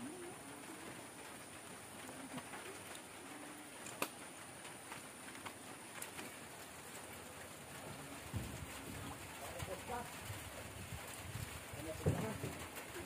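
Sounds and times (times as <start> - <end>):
light rain on foliage: 0.0 - 13.0.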